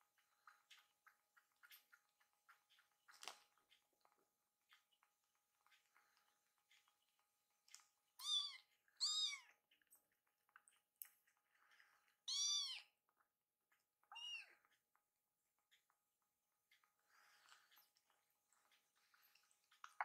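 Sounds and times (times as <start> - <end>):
kitten meowing: 8.2 - 9.5, 12.3 - 12.8, 14.1 - 14.5.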